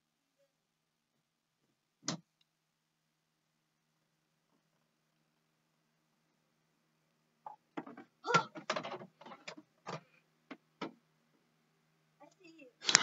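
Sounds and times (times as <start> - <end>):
short knocks and bumps: 7.5 - 11.0.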